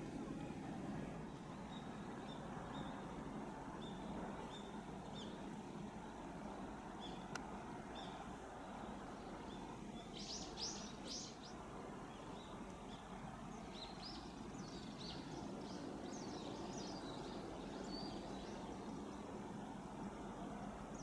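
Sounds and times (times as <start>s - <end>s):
outdoor background noise: 0.0s - 21.0s
small birds chirping: 1.3s - 5.6s, 6.9s - 19.3s.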